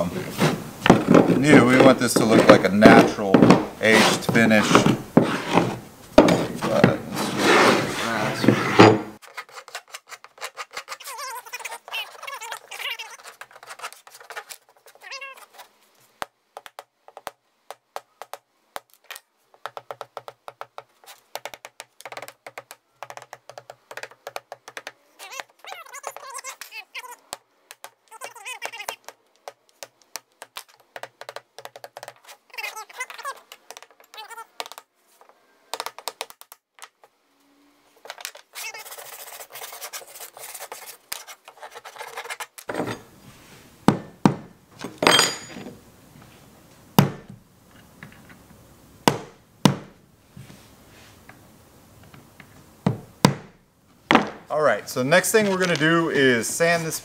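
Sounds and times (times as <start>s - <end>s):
squeaky scrapes: 0.0s - 15.7s, 25.2s - 27.2s, 32.2s - 34.5s, 38.5s - 43.1s.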